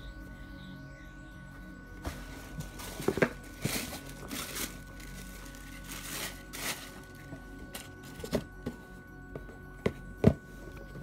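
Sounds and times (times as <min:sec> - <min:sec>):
background music: 0:00.0 - 0:11.0
tissue paper crinkling: 0:02.7 - 0:08.2.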